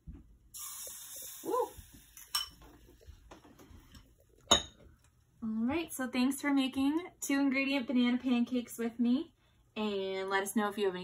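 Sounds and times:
batter sizzling in a frying pan: 0.5s - 3.0s
metal spoon clinking on bowl: 2.3s - 2.6s.

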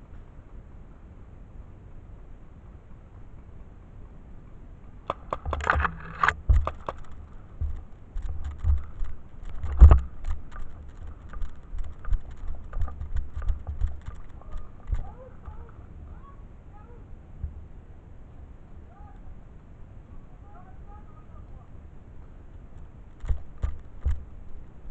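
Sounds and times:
footsteps: 5.1s - 15.8s
gear knocking against camera: 5.1s - 15.8s, 23.2s - 24.6s.

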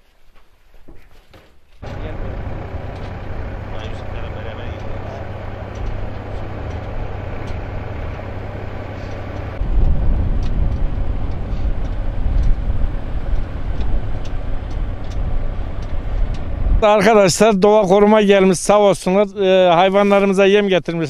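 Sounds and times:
tractor engine running: 1.8s - 17.5s.

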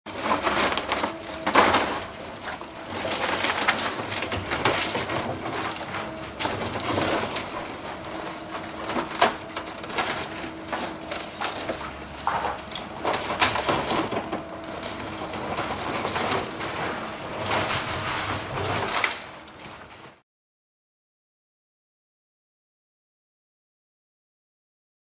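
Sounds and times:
falling debris knocks: 0.1s - 20.1s
wood cracking and splintering: 0.1s - 20.2s.

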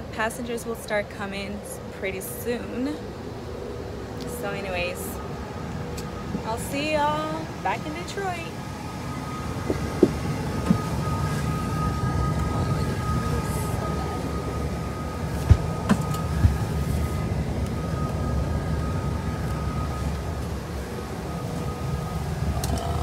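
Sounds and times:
airliner cabin low rumble: 0.0s - 23.0s
thin steady whine: 0.0s - 23.0s.

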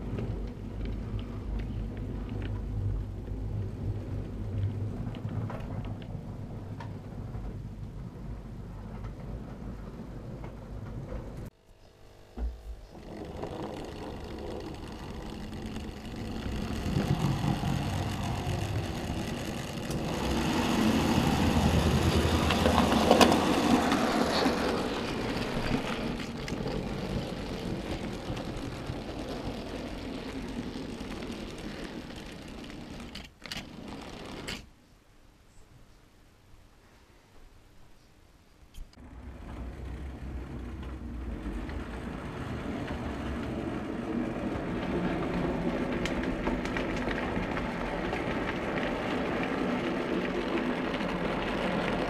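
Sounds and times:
steady low hum: 0.0s - 34.5s
model train running: 12.9s - 34.6s, 39.0s - 52.0s.

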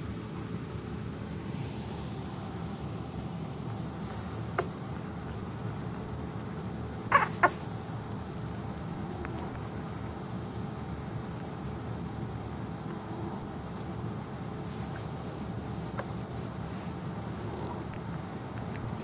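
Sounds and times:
puppy squeaking: 7.1s - 8.1s.

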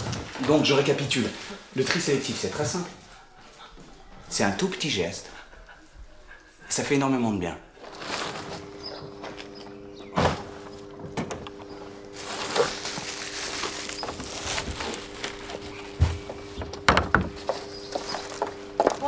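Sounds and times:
plastic bin bag rustling: 7.8s - 19.0s.

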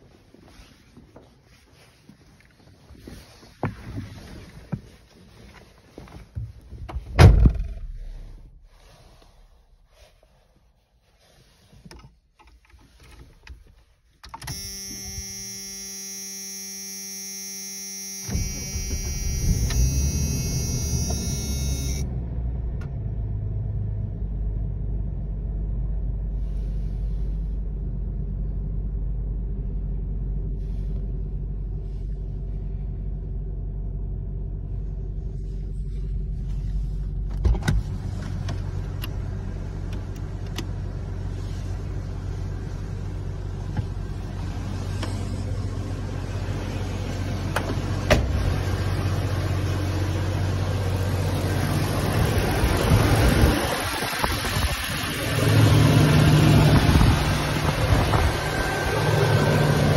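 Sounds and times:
car engine starting and idling: 0.1s - 59.9s
electronic warning tone: 14.4s - 22.1s.

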